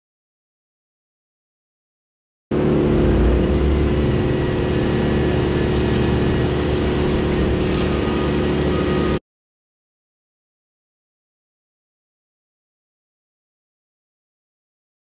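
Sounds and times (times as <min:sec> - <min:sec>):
engine running steadily: 0:02.5 - 0:09.2.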